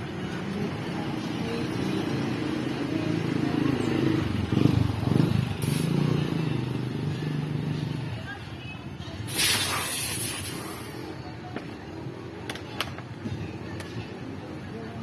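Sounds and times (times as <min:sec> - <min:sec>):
steady engine hum: 0:00.0 - 0:15.0
motorcycle passing close: 0:01.5 - 0:08.3.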